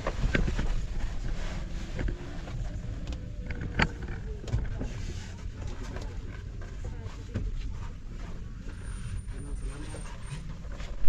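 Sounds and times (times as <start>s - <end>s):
vehicle low rumble: 0.0s - 11.0s.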